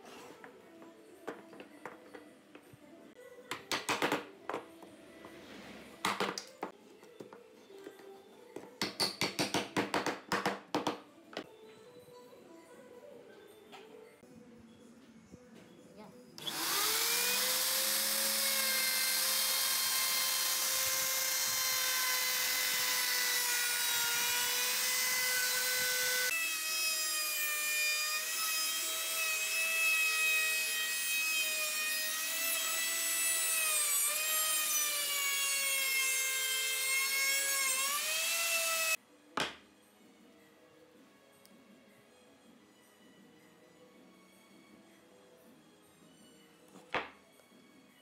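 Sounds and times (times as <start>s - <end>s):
electric router whining: 16.4s - 39.0s.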